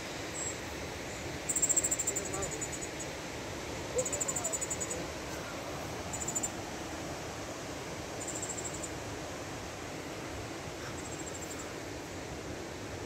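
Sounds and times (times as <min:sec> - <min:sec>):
steady background hiss: 0:00.0 - 0:13.0
insect chirping in trills: 0:00.3 - 0:03.2, 0:03.8 - 0:05.2, 0:06.0 - 0:06.6, 0:08.1 - 0:09.0, 0:10.8 - 0:11.7.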